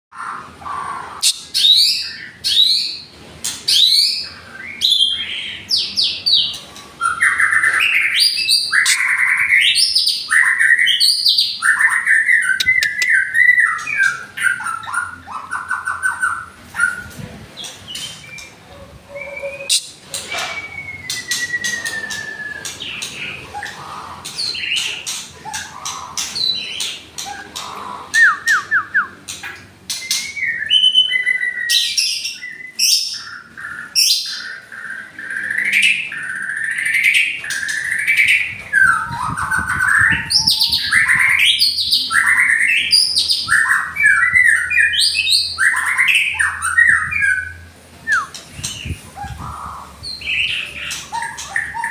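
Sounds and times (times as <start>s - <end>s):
birds singing whistled phrases: 0.2s - 51.9s
sharp bird clicks: 12.5s - 13.3s.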